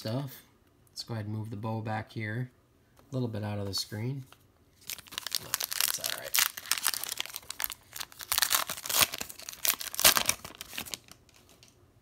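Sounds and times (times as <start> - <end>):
plastic wrapper crinkling: 4.8 - 11.8.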